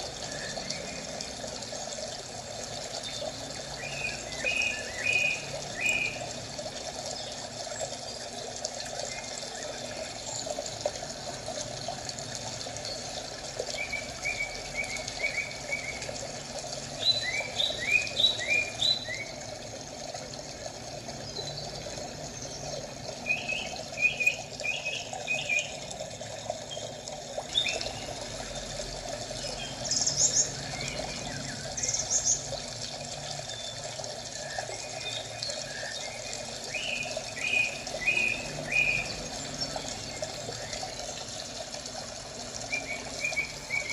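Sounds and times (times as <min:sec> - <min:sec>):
water trickling: 0:00.0 - 0:43.9
birds chirping: 0:17.0 - 0:19.4, 0:21.2 - 0:25.8, 0:33.5 - 0:41.3, 0:42.6 - 0:43.9.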